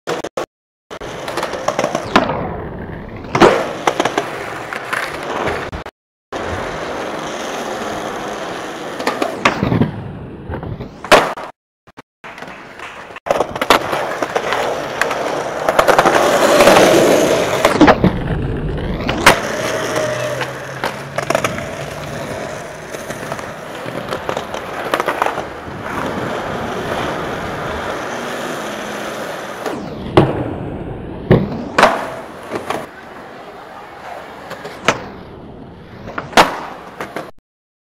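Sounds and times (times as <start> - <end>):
skateboard wheels rolling on concrete: 0.1 - 11.5, 12.2 - 37.4
skateboard clacking: 1.0 - 2.1, 12.2 - 18.0, 19.2 - 29.6, 31.3 - 35.1, 36.1 - 37.3.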